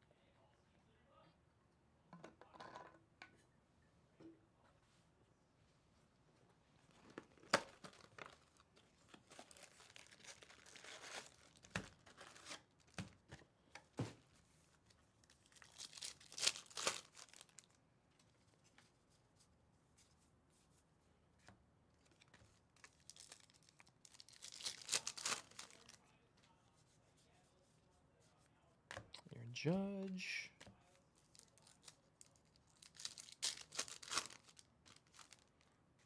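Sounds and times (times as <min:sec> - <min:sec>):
wrapper crinkling and tearing: 0:07.0 - 0:13.0, 0:15.2 - 0:17.8, 0:22.0 - 0:26.0, 0:31.2 - 0:35.7.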